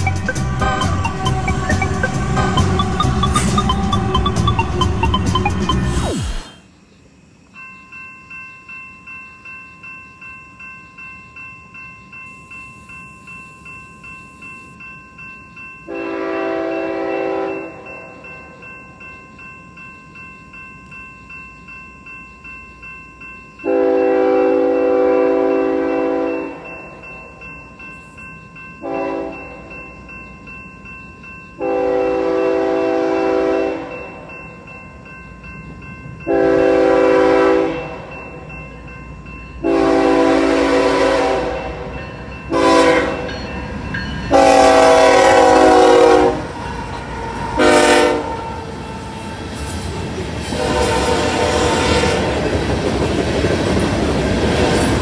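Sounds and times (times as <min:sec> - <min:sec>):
railroad crossing bell ringing: 0:00.0 - 0:05.9, 0:07.5 - 0:55.0
locomotive horn blasts: 0:15.9 - 0:17.9, 0:23.7 - 0:26.6, 0:28.8 - 0:29.5, 0:31.6 - 0:34.0, 0:36.3 - 0:38.0, 0:39.6 - 0:41.9, 0:42.5 - 0:43.3, 0:44.3 - 0:46.5, 0:47.6 - 0:48.5, 0:50.6 - 0:52.4.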